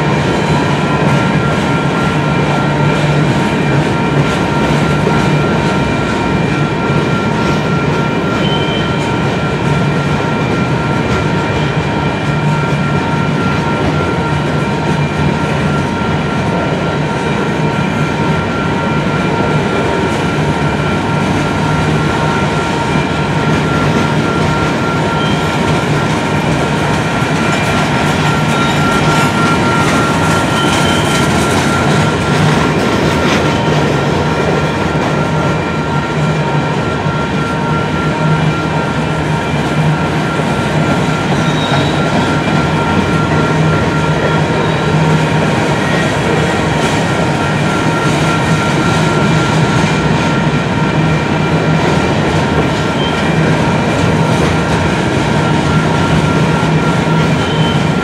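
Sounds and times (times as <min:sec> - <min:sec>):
freight train rumbling past: 0:00.0 - 0:58.0
thin steady ringing tone: 0:00.0 - 0:58.0.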